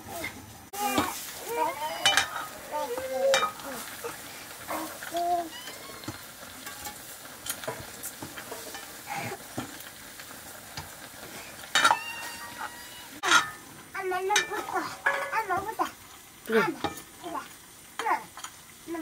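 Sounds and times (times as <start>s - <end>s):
chicken frying sizzle: 0.0s - 19.0s
metal ladle scraping pan: 1.9s - 4.0s, 4.7s - 9.8s, 11.7s - 13.6s
ladle knocking metal pan: 2.0s - 2.5s, 3.3s - 3.6s, 11.7s - 12.1s, 13.2s - 13.6s.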